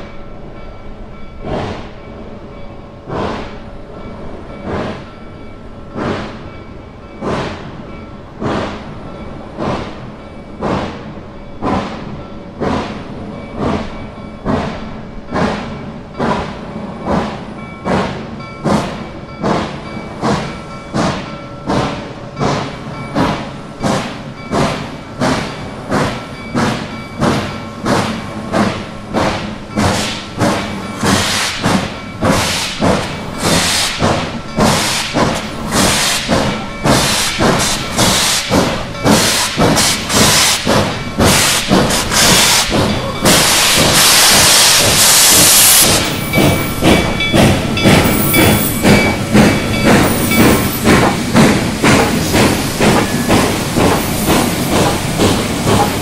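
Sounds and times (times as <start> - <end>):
steam locomotive exhaust chuffs: 0.0 - 56.0
loud hiss of steam: 14.5 - 56.0.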